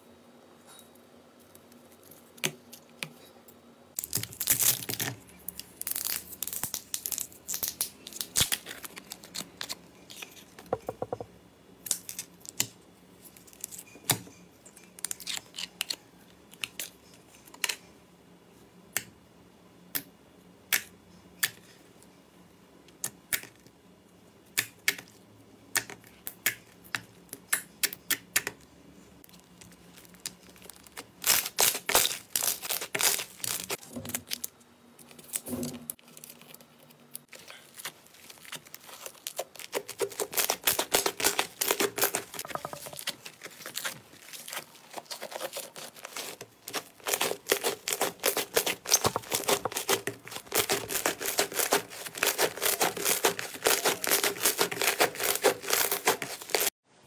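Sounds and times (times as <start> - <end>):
slime crackling and tearing pops: 37.8 - 42.4, 43.0 - 56.7.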